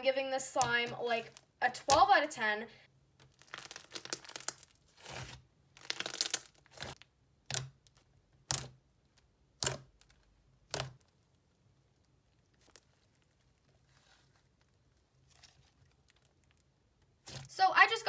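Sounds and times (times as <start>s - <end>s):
slime squishing: 3.1s - 17.6s.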